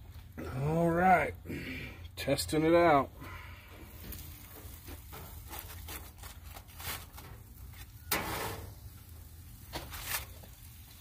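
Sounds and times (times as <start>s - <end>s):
metal tongs scraping grill grate: 4.0s - 10.8s.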